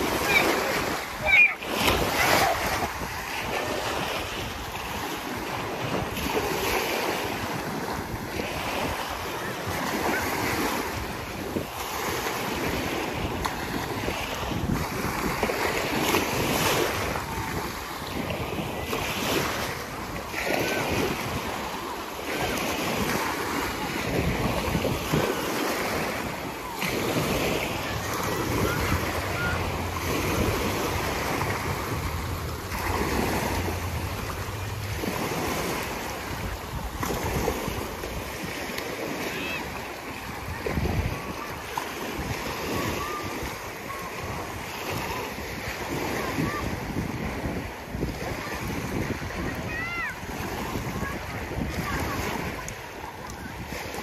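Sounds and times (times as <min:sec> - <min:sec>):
waves washing up the shore: 0:00.0 - 0:54.0
wind buffeting the microphone: 0:00.0 - 0:54.0.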